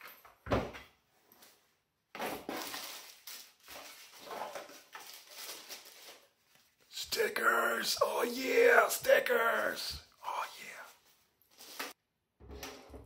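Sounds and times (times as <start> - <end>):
rustling and crinkling: 1.2 - 6.9, 10.8 - 12.0.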